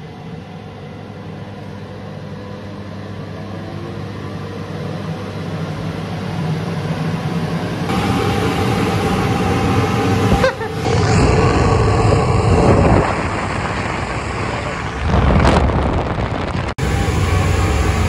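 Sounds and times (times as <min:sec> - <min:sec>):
organ blower motor humming: 0:07.2 - 0:18.0.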